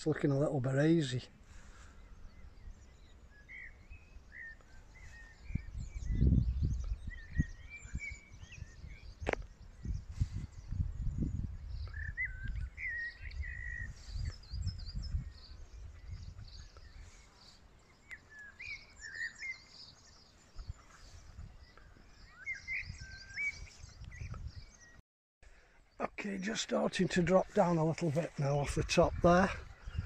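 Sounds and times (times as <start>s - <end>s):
songbirds singing: 0.0s - 30.0s
wind rumble on microphone: 5.0s - 17.3s, 20.1s - 25.0s, 28.6s - 30.0s.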